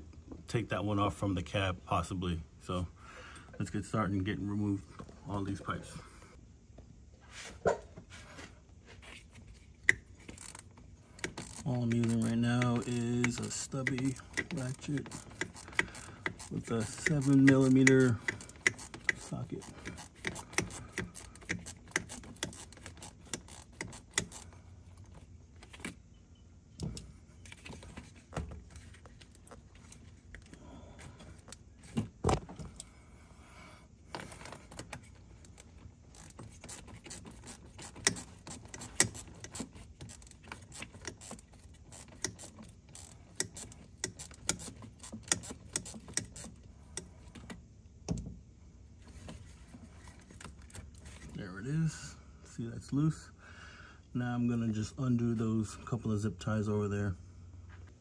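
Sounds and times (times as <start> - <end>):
ratchet clicking: 9.8 - 25.1, 34.2 - 47.5.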